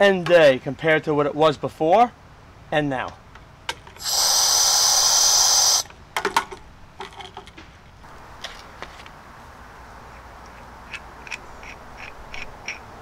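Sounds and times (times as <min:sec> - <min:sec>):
compressed air hissing from hose: 0:04.0 - 0:05.9
metal fittings clicking and knocking: 0:10.4 - 0:12.9.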